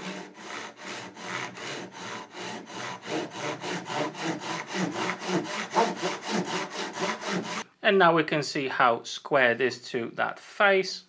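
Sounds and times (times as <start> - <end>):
hand saw cutting wood: 0.0 - 7.7.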